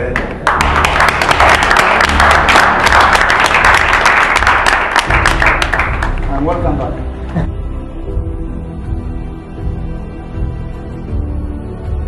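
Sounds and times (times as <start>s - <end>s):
people applauding: 0.0s - 6.7s.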